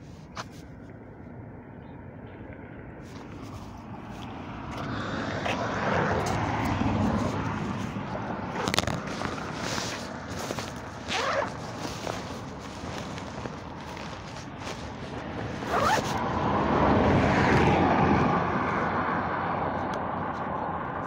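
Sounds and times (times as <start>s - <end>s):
vehicle passing: 2.6s - 21.0s.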